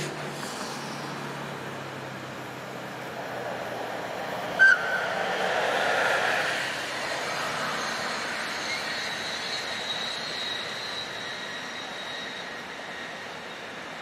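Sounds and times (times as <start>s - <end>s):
train rolling: 0.0s - 14.0s
thin high whine: 4.0s - 14.0s.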